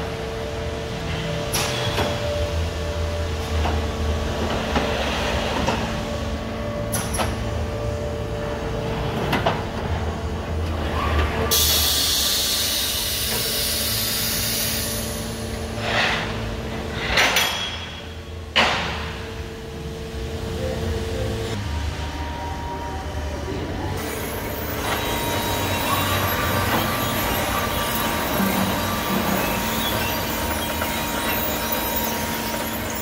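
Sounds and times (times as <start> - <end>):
machine hum: 18.0 - 33.0.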